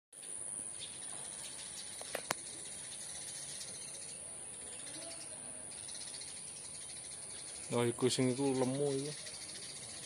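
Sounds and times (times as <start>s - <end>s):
insects droning: 0.2s - 10.0s.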